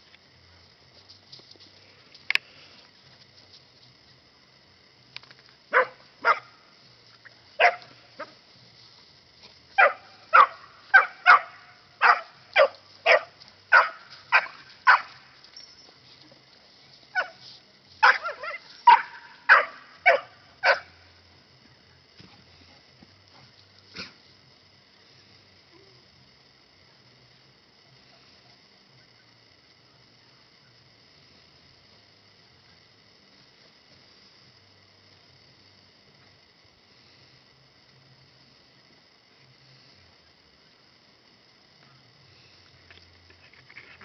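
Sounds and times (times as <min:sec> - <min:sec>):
dogs barking: 0:05.7 - 0:06.5, 0:07.6 - 0:08.3, 0:09.8 - 0:15.2, 0:18.0 - 0:20.9.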